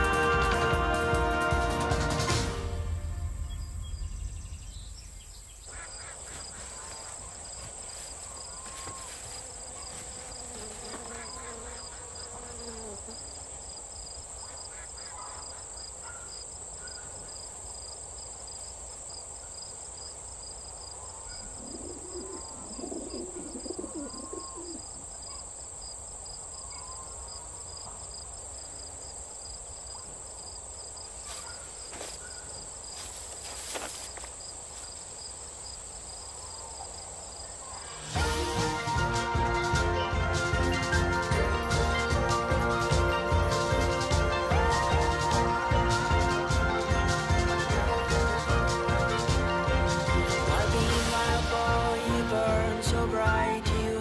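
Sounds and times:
bird chirps: 0:03.4 - 0:07.5, 0:21.0 - 0:25.5
high insect trilling: 0:04.4 - 0:15.6
low cooing calls: 0:21.0 - 0:25.5.

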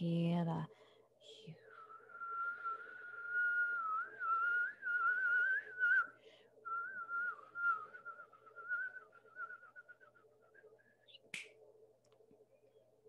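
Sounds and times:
person whistling: 0:01.6 - 0:11.2.

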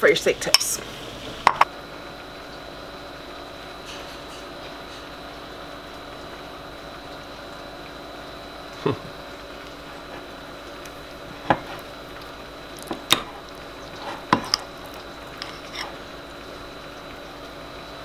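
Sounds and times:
spoon scooping thick dressing: 0:13.9 - 0:16.0.

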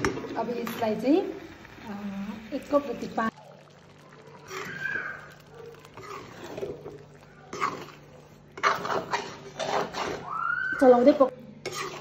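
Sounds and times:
metal spoon stirring and scraping: 0:02.7 - 0:12.0.

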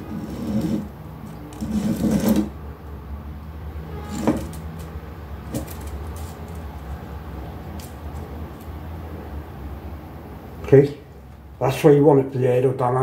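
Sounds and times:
fishing line rustling: 0:04.4 - 0:07.0.

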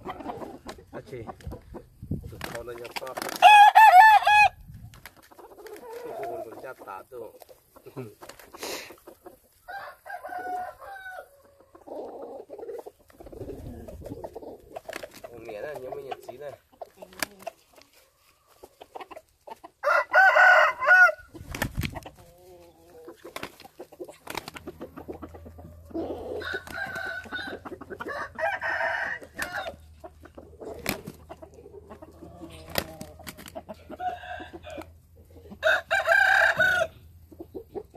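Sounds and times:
chickens squawking: 0:00.0 - 0:37.9
wing-flapping scuffles: 0:21.4 - 0:22.2.

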